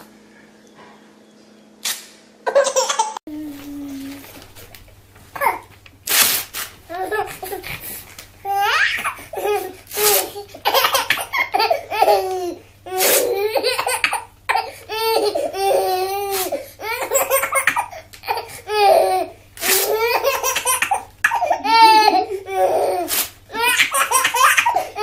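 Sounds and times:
baby laughing: 2.4 - 3.2, 6.9 - 7.8, 8.5 - 25.0
paper tearing: 6.0 - 6.8, 9.9 - 10.3, 23.1 - 23.4.

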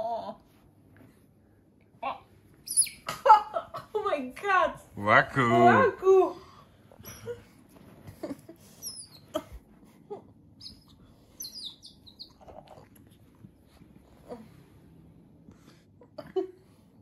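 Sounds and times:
otters squeaky chirps: 2.6 - 3.1, 8.8 - 9.4, 10.6 - 12.7
faint clicks and snuffling: 12.1 - 16.2.

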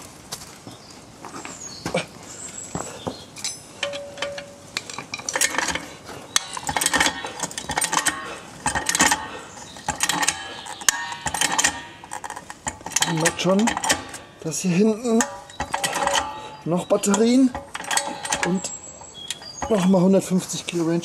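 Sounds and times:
car jack clanking and clicking: 3.4 - 20.1.

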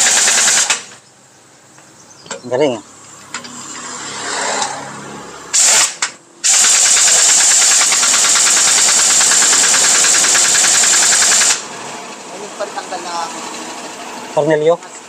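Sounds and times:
pneumatic impact wrench hammering: 0.0 - 1.0, 5.5 - 11.7.

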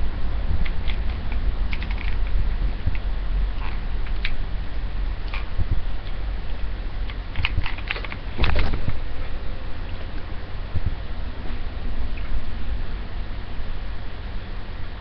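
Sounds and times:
steady low hum: 0.0 - 15.0
hair iron clicks and rustles: 0.6 - 3.0, 7.0 - 9.0.

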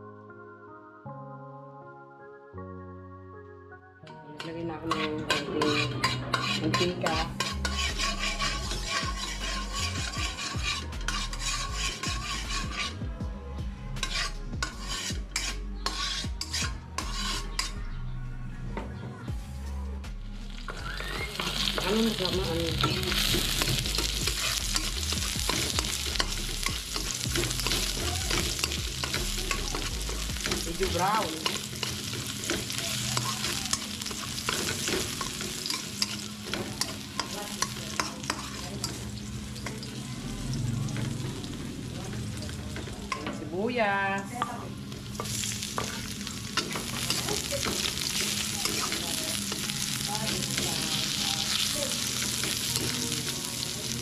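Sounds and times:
metal spatula scraping a wok: 4.8 - 13.0, 14.0 - 17.8, 21.0 - 40.2, 45.1 - 54.0
garlic sizzling in hot oil: 5.0 - 12.9, 14.0 - 17.8, 20.5 - 54.0.

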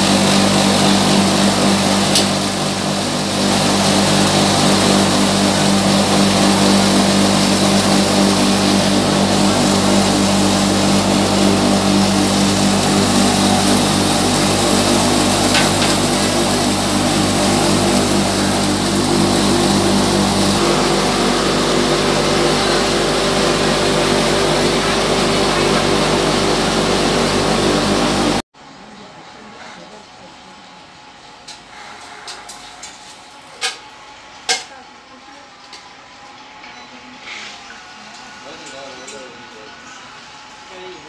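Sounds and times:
mill machinery droning: 0.0 - 28.4.

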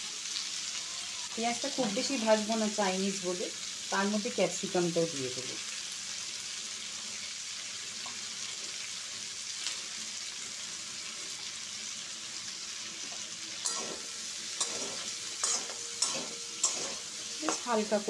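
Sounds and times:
onions sizzling in oil: 0.0 - 18.0
spatula scraping pan: 13.1 - 18.0.

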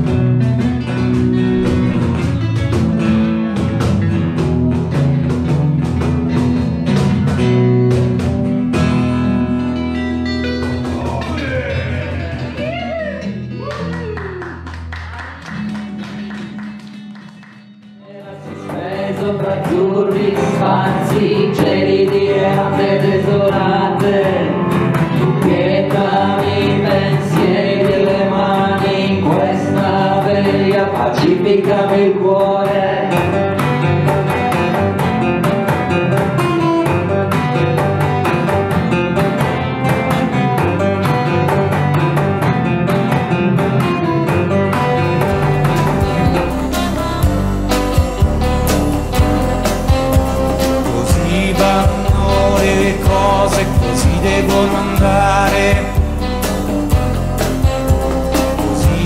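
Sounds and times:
cajon beat: 0.0 - 59.0
strummed acoustic guitars: 0.0 - 59.0
person singing melody: 10.9 - 14.6, 44.9 - 59.0.

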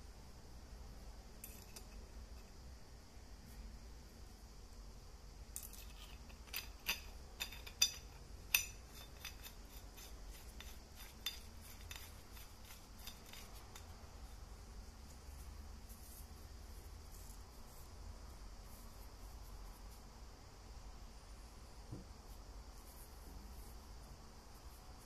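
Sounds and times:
metal fittings clicking and clinking: 5.6 - 14.0.

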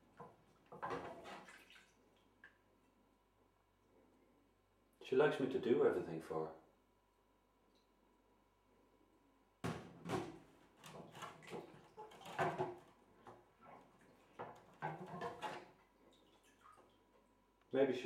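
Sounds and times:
objects clattering and rustling: 0.0 - 1.6, 9.6 - 15.8.

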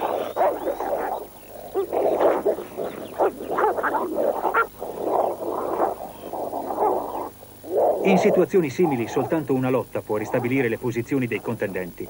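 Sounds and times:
dogs snarling and growling: 0.0 - 9.5.

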